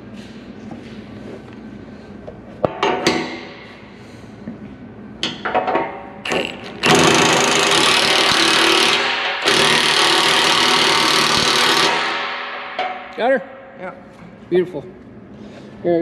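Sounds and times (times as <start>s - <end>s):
impact wrench hammering: 2.7s - 3.6s, 5.2s - 13.7s.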